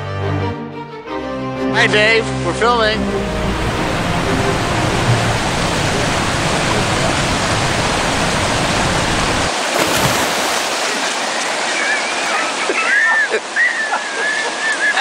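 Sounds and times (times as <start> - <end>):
water rushing over rocks: 3.4 - 15.0.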